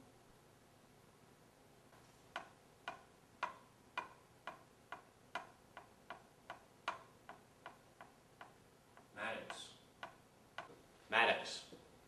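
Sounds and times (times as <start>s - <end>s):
sharp ticks: 2.3s - 10.7s.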